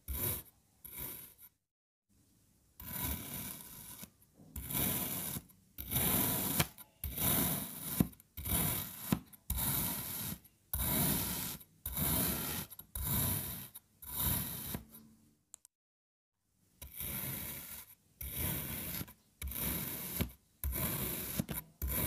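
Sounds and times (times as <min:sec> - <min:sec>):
blade scraping through sand: 0:02.8 - 0:14.9, 0:16.9 - 0:22.0.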